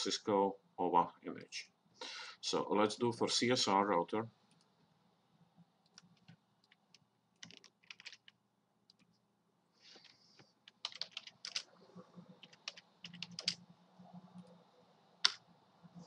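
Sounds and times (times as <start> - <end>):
keyboard typing clicks: 5.9 - 9.1, 10.7 - 11.7, 12.4 - 13.6.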